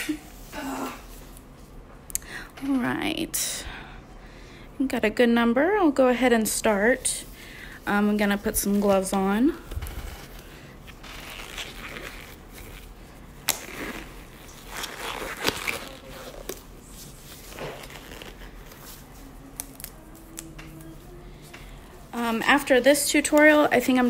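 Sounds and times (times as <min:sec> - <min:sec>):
gloves rustling and crinkling: 0:06.4 - 0:24.0
glove snaps and clicks: 0:13.4 - 0:13.8.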